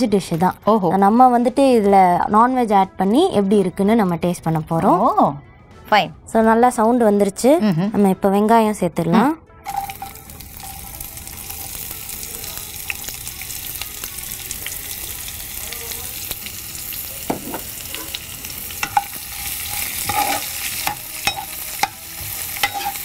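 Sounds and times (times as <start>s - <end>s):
steel spoon scraping a pan: 9.7s - 11.8s, 17.4s - 23.0s
onions sizzling in hot oil: 9.7s - 23.0s.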